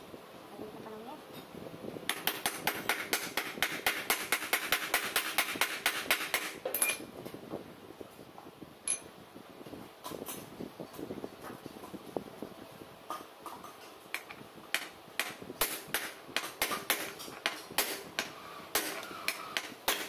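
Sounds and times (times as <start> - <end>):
metal clinks: 6.7 - 7.0, 8.8 - 9.1
short metallic ring: 6.7 - 7.0, 8.9 - 9.1.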